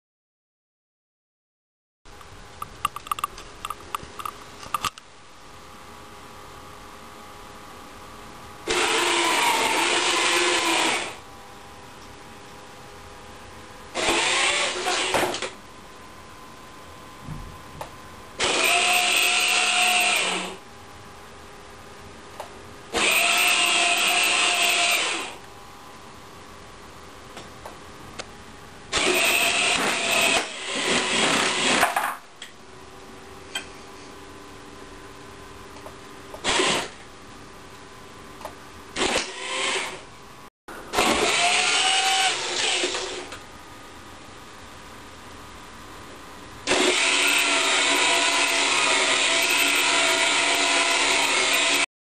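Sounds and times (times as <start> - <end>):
robot rover motors whining: 8.7 - 11.2, 14.0 - 15.2, 18.4 - 20.6, 23.0 - 25.4, 28.9 - 31.7, 41.0 - 43.2, 46.7 - 51.9.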